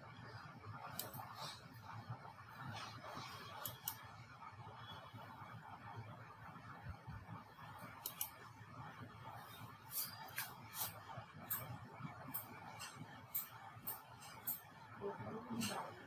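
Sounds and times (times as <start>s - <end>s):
faint room noise: 0.0s - 16.0s
computer mouse clicking: 0.9s - 1.6s, 3.0s - 4.1s, 7.8s - 8.5s.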